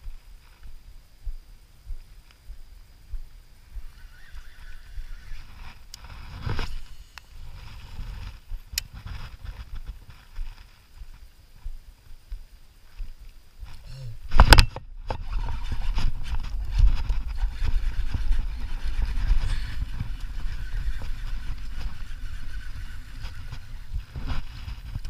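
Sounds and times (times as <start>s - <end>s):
camera handling rumble and thumps: 13.7s - 20.1s.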